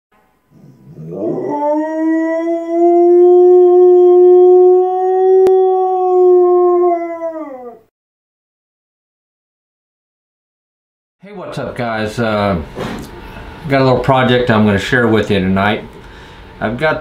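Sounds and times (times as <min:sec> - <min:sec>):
dog howling: 0:00.6 - 0:07.9.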